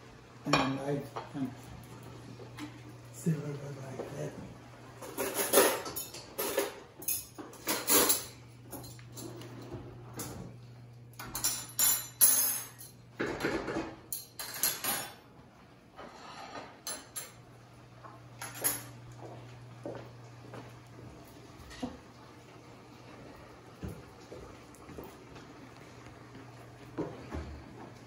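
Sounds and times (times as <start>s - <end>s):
metal cutlery clinking: 5.0s - 9.6s, 11.1s - 15.2s, 18.4s - 19.0s.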